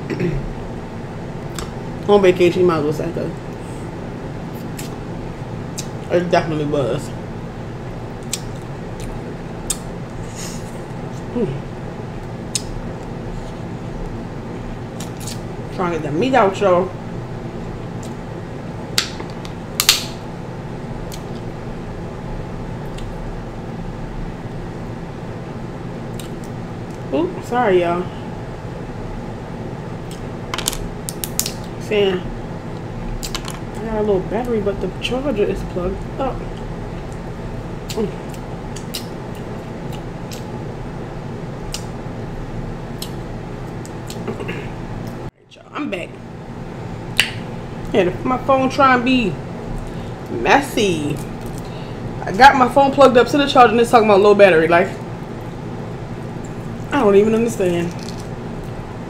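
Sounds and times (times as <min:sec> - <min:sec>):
fan hum: 0:00.0 - 0:59.0
crab shell cracking: 0:57.9 - 0:58.8.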